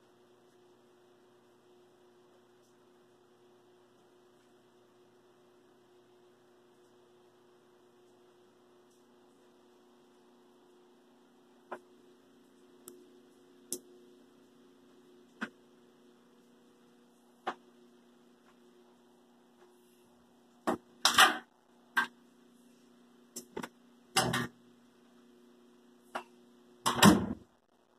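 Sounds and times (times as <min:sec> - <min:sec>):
faint electrical hum: 0:00.0 - 0:27.9
washing machine lid knocks and bangs: 0:26.9 - 0:27.4.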